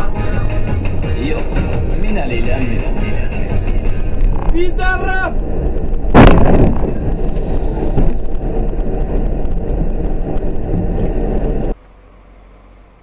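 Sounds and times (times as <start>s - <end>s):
car road and engine noise: 0.0s - 13.0s
car collision bang: 6.1s - 7.0s.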